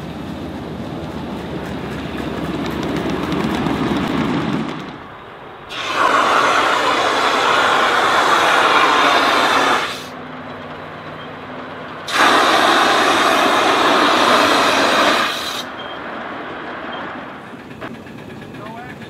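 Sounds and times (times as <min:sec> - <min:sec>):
model train running: 0:00.0 - 0:19.0
steam hissing: 0:05.7 - 0:10.2, 0:12.0 - 0:15.8.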